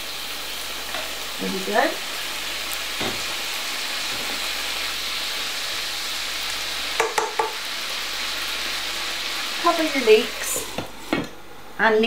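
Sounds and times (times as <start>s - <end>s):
leeks sizzling in a frying pan: 0.0s - 12.0s.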